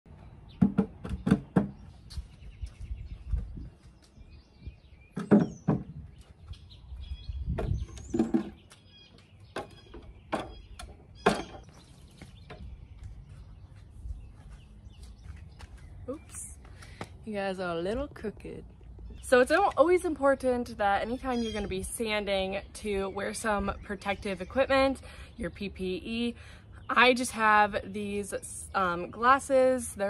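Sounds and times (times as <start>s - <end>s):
birds chirping: 0.1s - 30.0s
wooden tables knocking on concrete: 0.6s - 1.8s, 5.2s - 6.0s, 7.5s - 8.7s, 9.5s - 11.7s.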